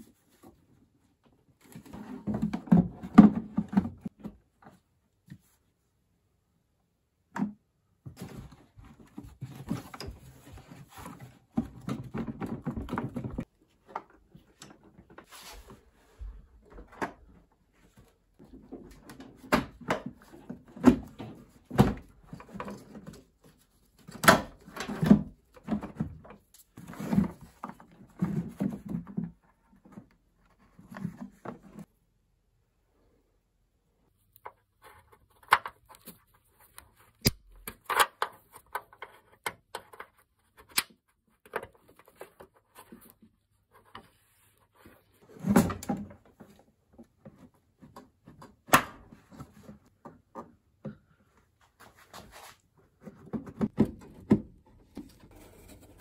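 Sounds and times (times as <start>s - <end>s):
plastic parts knocking and clicking: 53.1s - 55.3s.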